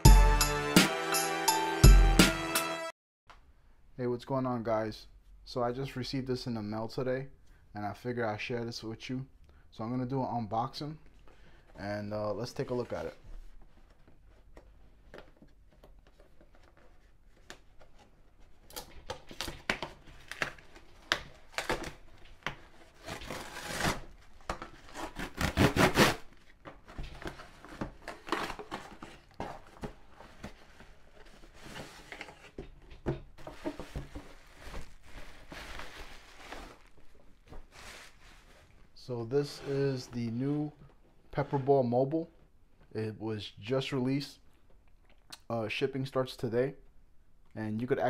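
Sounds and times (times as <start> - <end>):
cardboard and paper tearing: 22.8 - 26.3.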